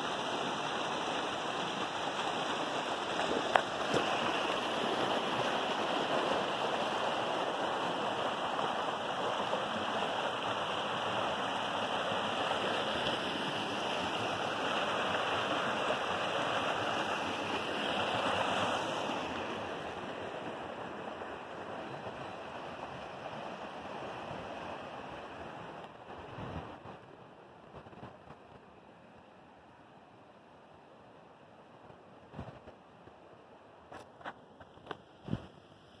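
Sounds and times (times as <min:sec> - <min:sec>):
stream water rushing over rocks: 0:00.0 - 0:27.3.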